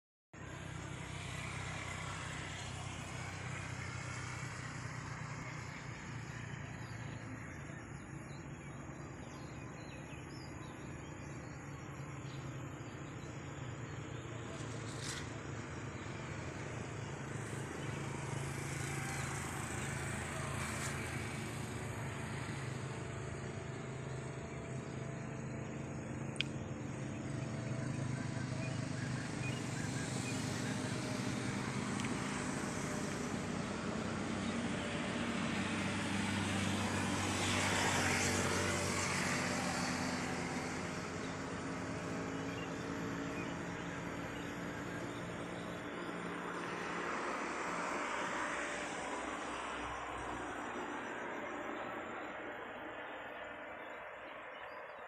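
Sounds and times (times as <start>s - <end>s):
outdoor background noise: 0.4s - 55.0s.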